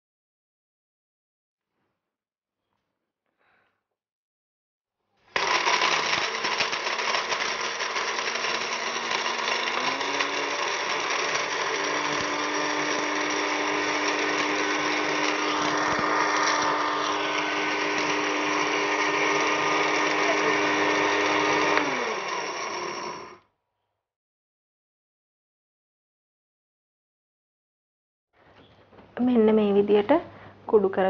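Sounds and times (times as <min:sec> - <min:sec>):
blender motor whine: 0:05.3 - 0:23.5.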